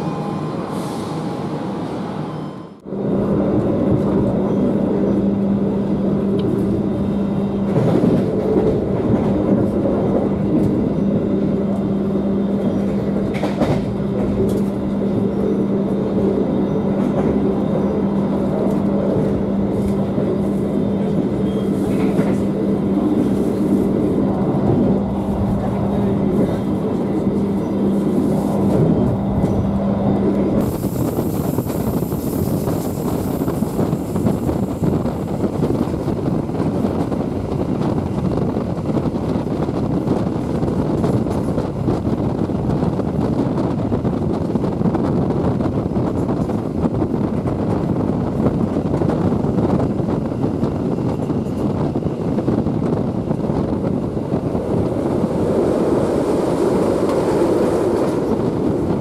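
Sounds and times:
train wheels rumbling on rail: 0.0s - 59.0s
wind hiss: 30.6s - 59.0s.

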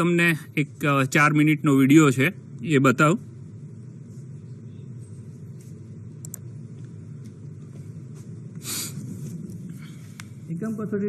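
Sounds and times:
burst of hiss: 8.6s - 9.1s.

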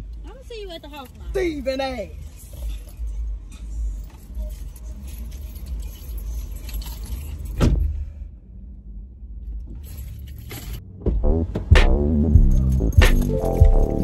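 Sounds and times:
keys jangling: 2.2s - 7.6s, 9.7s - 10.8s, 12.4s - 14.0s
car engine running: 10.6s - 14.0s
sharp thump: 11.0s - 12.0s.

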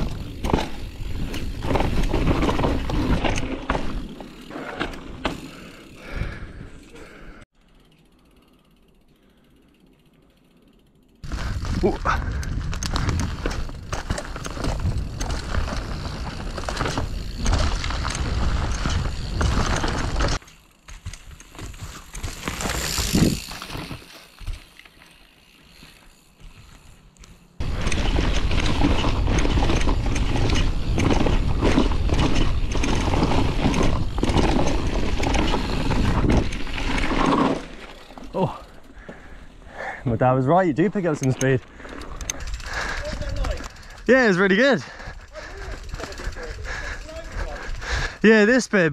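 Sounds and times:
bike tyres over dirt: 0.0s - 48.9s
wind buffeting microphone: 11.3s - 16.3s.

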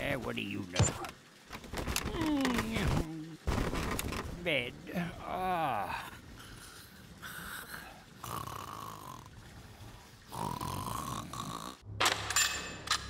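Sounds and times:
cartoon snoring: 7.2s - 9.6s, 10.2s - 11.8s.

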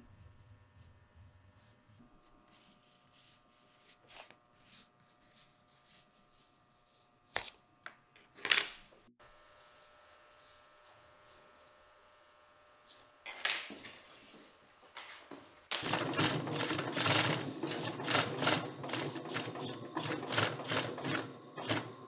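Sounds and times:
sewing machine stitching leather: 15.7s - 22.0s.

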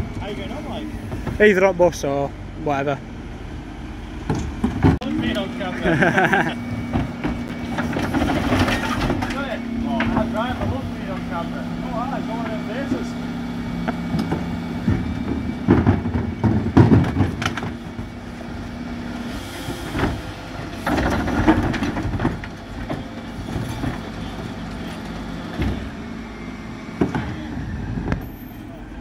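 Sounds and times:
truck engine humming: 0.0s - 29.0s
bins clattering and knocking: 6.8s - 11.2s, 14.1s - 18.2s, 20.1s - 25.9s.

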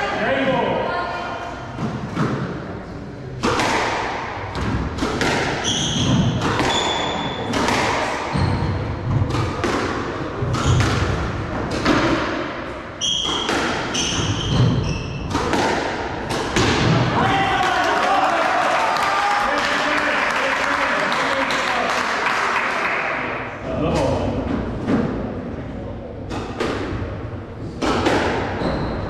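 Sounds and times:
squash ball thuds: 3.4s - 17.2s, 26.3s - 28.7s
shoes squeaking on wooden floor: 5.6s - 7.5s, 13.0s - 15.3s, 28.6s - 29.0s.

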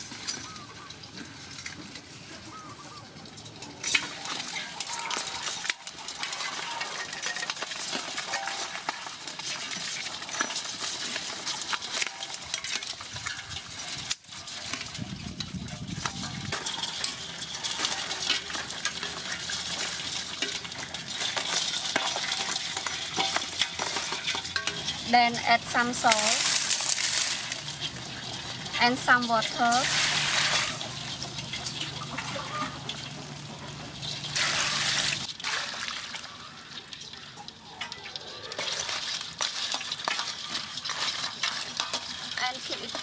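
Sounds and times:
crabs scratching in metal basin: 0.0s - 43.0s
metal tongs clinking on rim: 3.3s - 35.3s.

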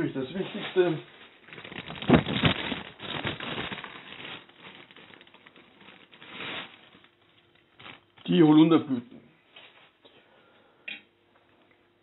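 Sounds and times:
crinkly rustling of flowers: 0.0s - 8.6s.

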